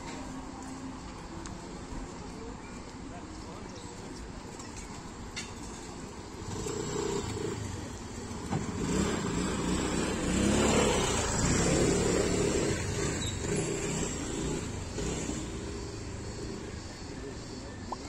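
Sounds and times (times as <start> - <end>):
street noise: 0.0 - 18.0
vehicle engine running: 6.3 - 18.0.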